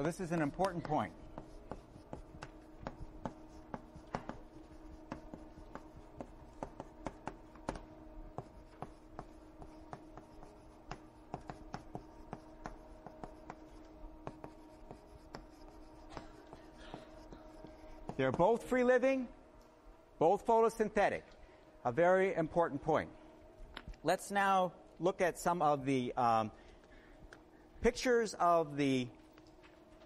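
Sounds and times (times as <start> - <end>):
writing tool scratching: 0.0 - 18.4
steady low hum: 0.0 - 30.0.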